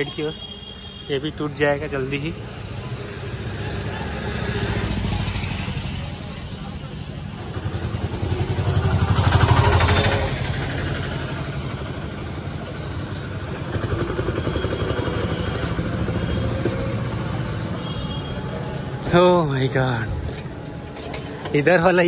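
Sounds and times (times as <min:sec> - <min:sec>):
street bustle: 0:00.0 - 0:22.0
motor vehicle passing: 0:07.4 - 0:17.6.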